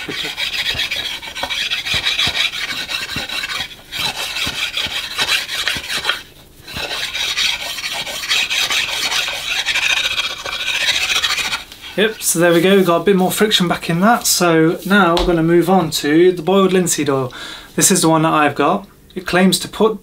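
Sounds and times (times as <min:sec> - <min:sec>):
sharpening stone scraping wood: 0:00.0 - 0:12.3.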